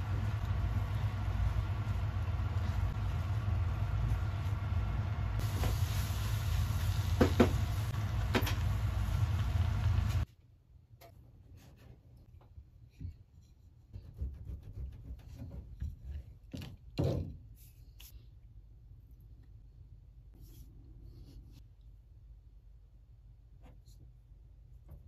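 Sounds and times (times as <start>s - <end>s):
gas stove rumble and hiss: 0.0s - 10.3s.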